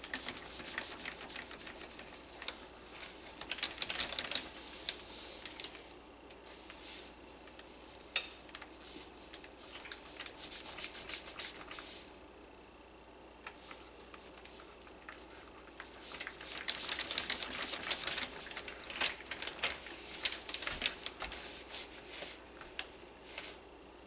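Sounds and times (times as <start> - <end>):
whisk scraping a pot: 8.2 - 12.1.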